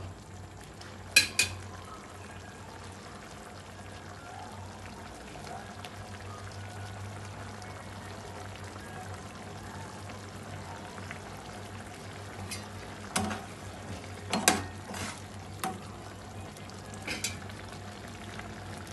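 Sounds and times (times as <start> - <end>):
oats bubbling: 0.0 - 18.9
metal spoon scraping a pan: 14.3 - 15.3.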